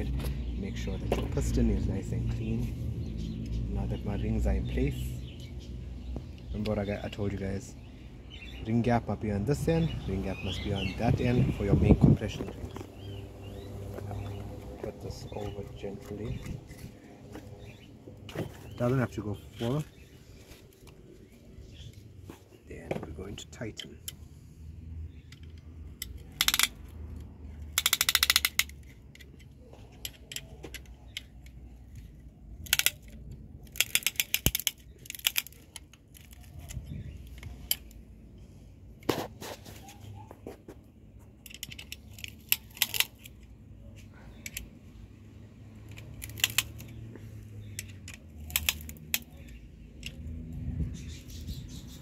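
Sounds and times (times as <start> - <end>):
ratchet clicking: 25.3 - 26.9, 27.6 - 29.3.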